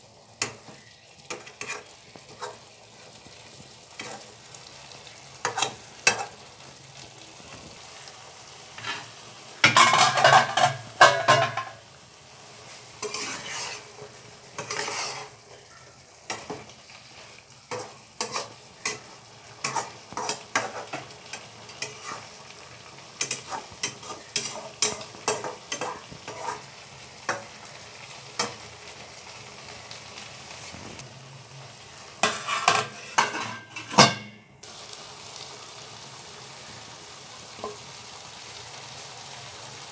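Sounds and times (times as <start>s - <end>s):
vegetables sizzling: 0.0s - 39.9s
metal spatula scraping wok: 0.4s - 2.7s, 3.9s - 4.5s, 5.4s - 6.4s, 8.7s - 11.8s, 12.5s - 22.6s, 23.2s - 27.5s, 32.2s - 34.3s
steel lid clattering on pan: 9.6s - 11.8s, 32.2s - 34.4s.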